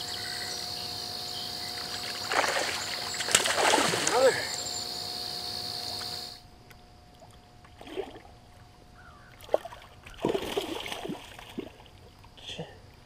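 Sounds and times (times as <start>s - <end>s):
fish splashing and thrashing: 1.7s - 4.6s, 7.1s - 12.3s.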